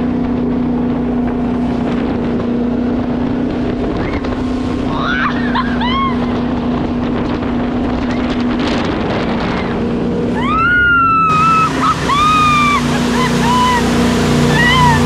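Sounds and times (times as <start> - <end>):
motorboat engine humming: 0.0 - 15.0
wind on microphone: 0.0 - 15.0
people screaming: 4.9 - 6.4, 10.3 - 15.0.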